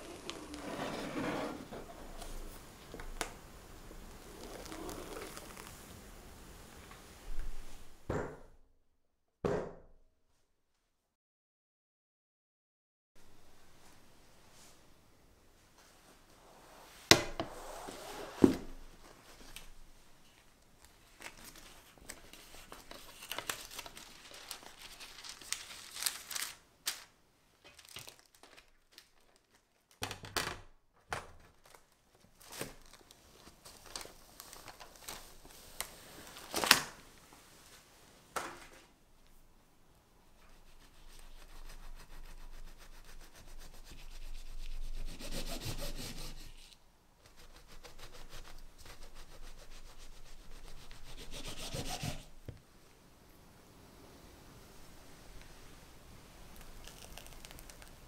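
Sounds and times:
paper crinkling: 0.0s - 6.2s, 19.3s - 30.0s, 31.1s - 37.0s, 56.5s - 58.0s.

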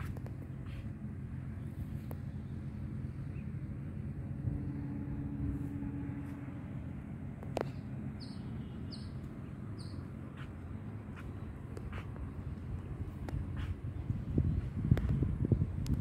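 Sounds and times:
steady low rumble: 0.0s - 16.0s.

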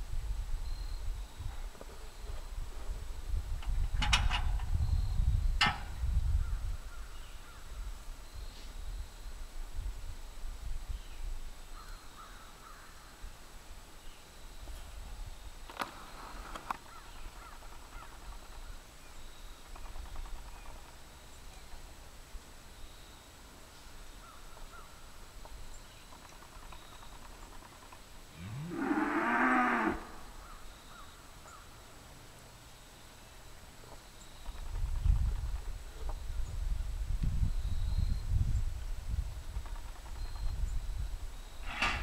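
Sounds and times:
cow mooing: 28.4s - 30.3s.

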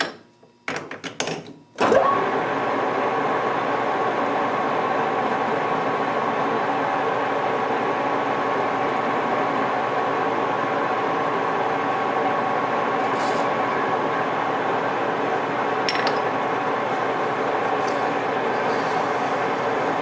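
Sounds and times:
metal lathe running: 12.9s - 20.0s.

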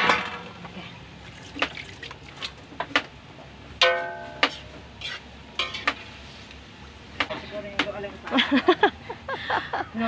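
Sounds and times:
faint frying noise: 0.0s - 8.9s
metallic clang: 3.8s - 4.6s
metal spatula scraping a wok: 3.9s - 6.4s.

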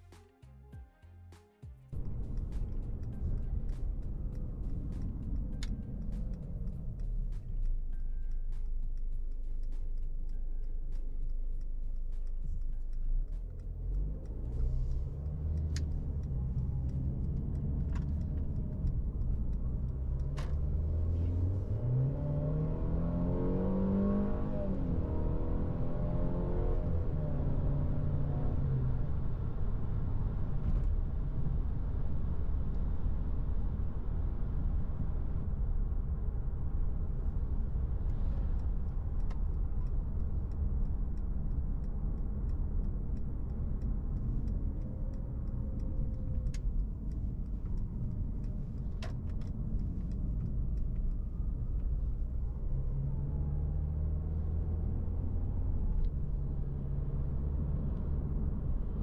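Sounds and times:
car engine hum: 1.9s - 59.0s
tyre and road noise: 1.9s - 59.0s
light clicks: 2.0s - 21.8s, 37.5s - 59.0s.

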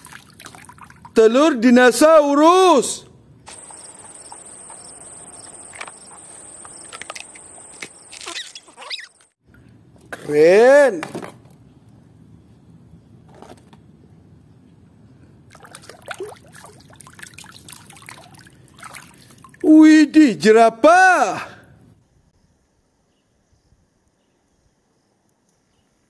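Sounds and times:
water sloshing and splashing: 0.0s - 1.2s, 15.5s - 19.6s.

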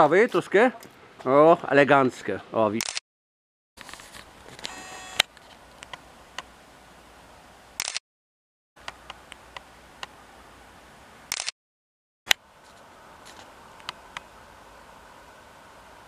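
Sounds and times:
sharp click: 2.8s - 3.0s, 7.8s - 8.0s, 11.3s - 11.5s
low steady hiss: 4.0s - 7.8s, 8.8s - 11.3s, 12.4s - 16.0s.

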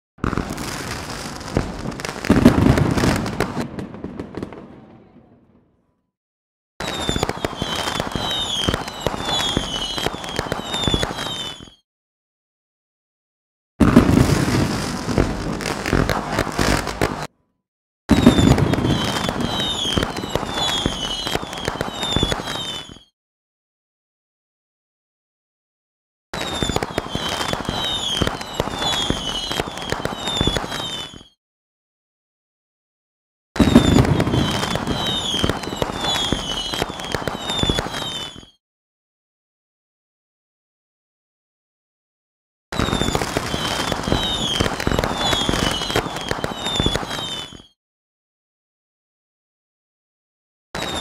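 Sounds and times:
fireworks crackling and popping: 0.2s - 5.2s, 6.8s - 11.8s, 13.8s - 17.3s, 18.1s - 23.1s, 26.4s - 31.4s, 33.6s - 38.6s, 42.8s - 47.8s, 50.8s - 51.0s
falling firework whistles: 6.8s - 11.9s, 13.8s - 17.3s, 18.1s - 23.2s, 26.4s - 31.4s, 33.6s - 38.6s, 42.7s - 47.8s, 50.8s - 51.0s.

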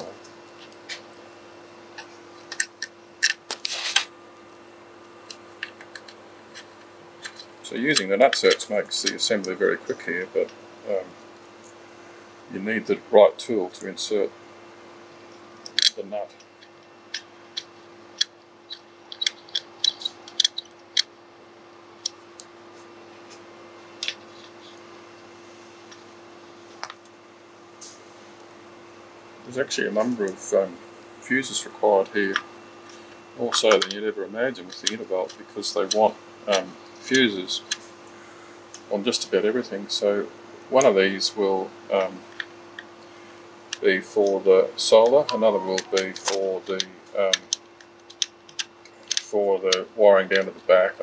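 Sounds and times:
faint hum: 0.0s - 51.0s
small metal parts clicking: 2.4s - 3.5s, 16.6s - 21.1s.

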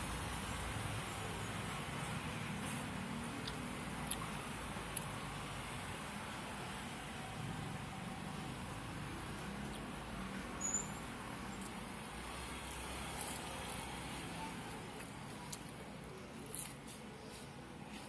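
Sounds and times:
road traffic: 0.0s - 18.0s
onion crunching as chewed: 3.4s - 5.2s, 12.6s - 17.0s.

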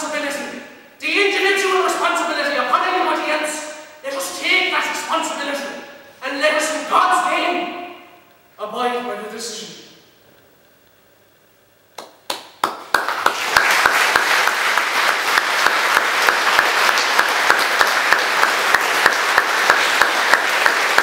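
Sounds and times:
audience applause: 12.3s - 21.0s.

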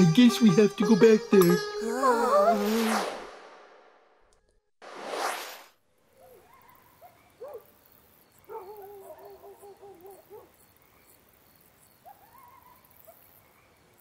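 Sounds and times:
faint insect chirps: 6.0s - 14.0s
hooting bird calls: 8.4s - 10.5s.

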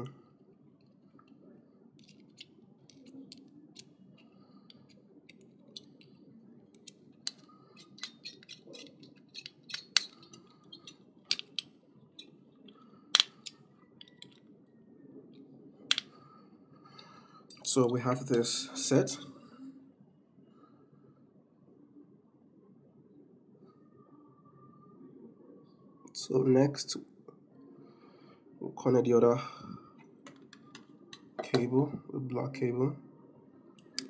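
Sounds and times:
screwdriver clicking on metal terminals: 6.8s - 11.7s.

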